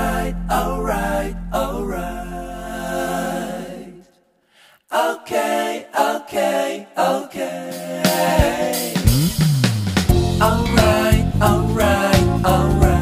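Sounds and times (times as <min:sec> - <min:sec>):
person singing: 0:10.2 - 0:13.0.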